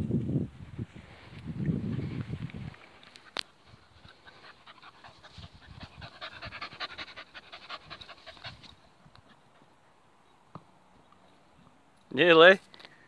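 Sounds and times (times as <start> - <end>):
dog panting: 3.5 - 9.8.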